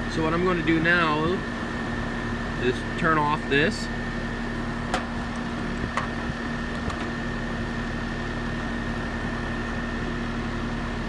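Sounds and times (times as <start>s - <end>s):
air conditioner unit humming: 0.0s - 11.0s.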